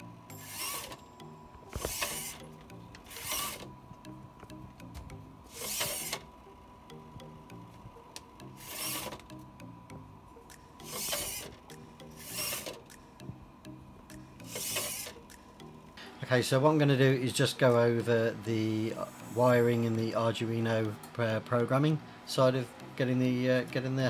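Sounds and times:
servos whirring: 0.3s - 1.0s, 1.7s - 3.7s, 5.5s - 6.3s, 8.5s - 9.3s, 10.8s - 13.0s, 14.4s - 15.4s.

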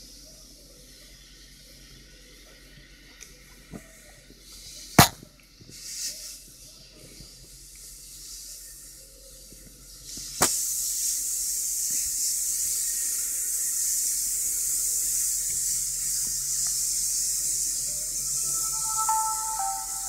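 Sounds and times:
steady high hiss: 11.0s - 20.0s.

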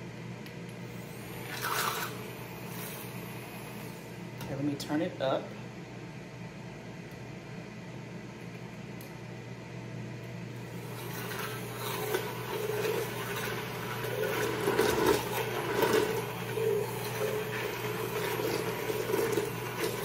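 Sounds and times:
immersion blender motor hum: 1.0s - 3.4s, 10.6s - 20.0s
soup churning: 10.8s - 20.0s.

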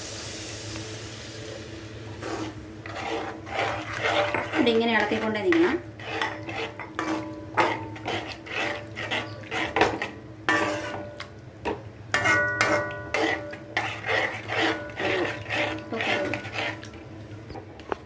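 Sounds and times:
metal spoon scraping a pan: 2.2s - 11.3s, 12.1s - 17.0s.

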